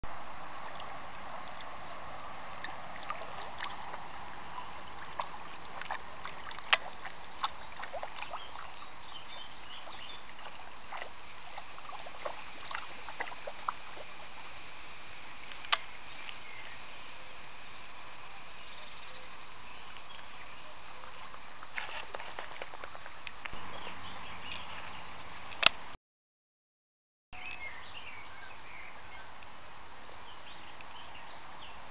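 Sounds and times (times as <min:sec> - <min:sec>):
dog splashing in water: 0:00.7 - 0:14.4.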